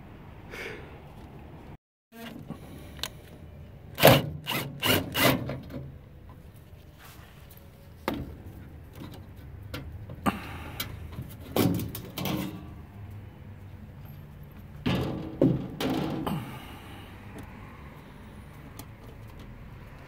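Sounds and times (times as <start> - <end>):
metal scraping and rattling: 10.8 - 12.9, 14.2 - 16.3.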